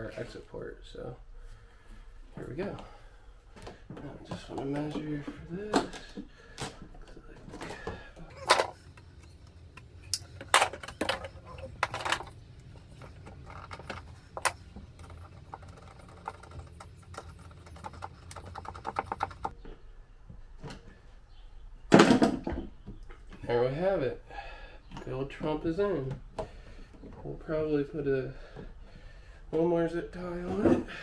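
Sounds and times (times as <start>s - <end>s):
hose knocking and rustling: 3.5s - 9.5s, 10.2s - 19.5s.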